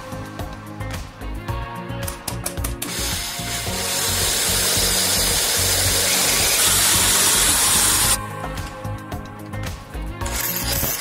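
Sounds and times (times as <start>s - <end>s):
electric drill cutting into metal: 2.8s - 8.2s, 10.2s - 11.0s.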